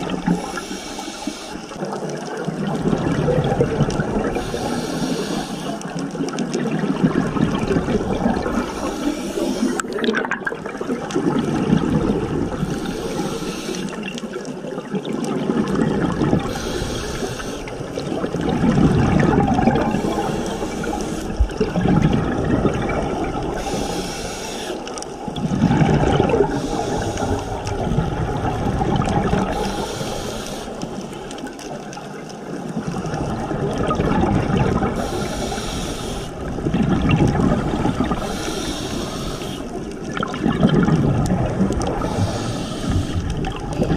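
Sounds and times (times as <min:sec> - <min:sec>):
regulator hiss: 0:00.3 - 0:01.8, 0:04.4 - 0:05.9, 0:12.6 - 0:14.0, 0:16.5 - 0:17.7, 0:19.9 - 0:21.5, 0:23.6 - 0:25.0, 0:26.5 - 0:27.7, 0:29.5 - 0:31.0, 0:35.0 - 0:36.4, 0:38.2 - 0:39.8, 0:42.0 - 0:43.3
bubbling underwater: 0:01.8 - 0:04.8, 0:05.8 - 0:24.0, 0:25.0 - 0:29.8, 0:30.8 - 0:35.7, 0:36.4 - 0:43.9.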